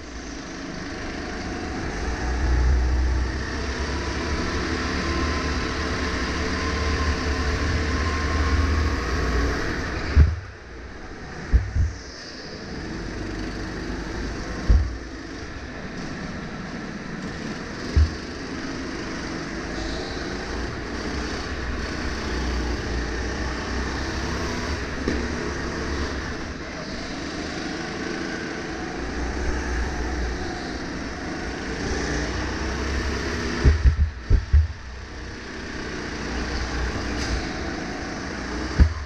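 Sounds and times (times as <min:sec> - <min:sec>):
go-kart engine running: 0:00.0 - 0:39.0
other karts: 0:00.0 - 0:39.0
loud low thumps: 0:11.4 - 0:12.0, 0:14.6 - 0:15.1, 0:18.0 - 0:18.2, 0:33.6 - 0:34.9.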